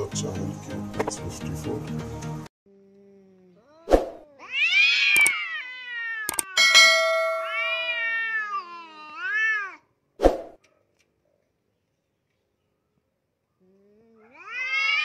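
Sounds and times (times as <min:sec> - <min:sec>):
cats yowling: 0:03.6 - 0:09.9, 0:13.9 - 0:15.0.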